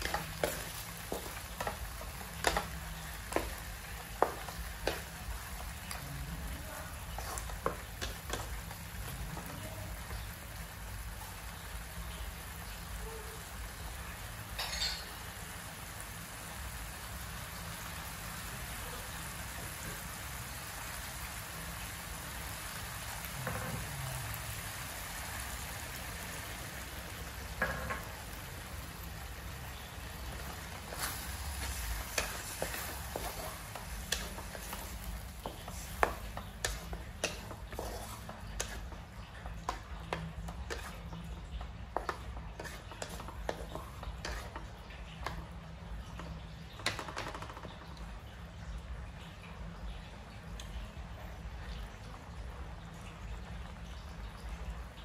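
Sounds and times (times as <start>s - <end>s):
spatula clicks and taps: 0.0s - 5.2s, 30.9s - 41.0s
sausages sizzling in sauce: 0.0s - 47.1s.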